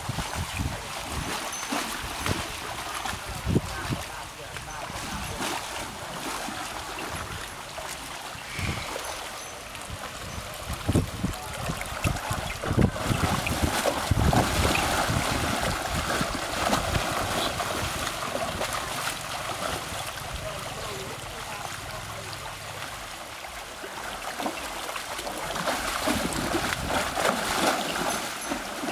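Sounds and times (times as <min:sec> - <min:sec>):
water splashing and running: 0:00.0 - 0:28.9
low rumbling gusts: 0:08.4 - 0:09.4.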